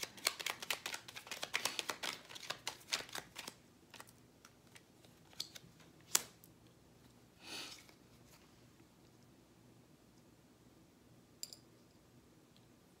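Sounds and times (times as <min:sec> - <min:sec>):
cards being shuffled: 0:00.0 - 0:06.4.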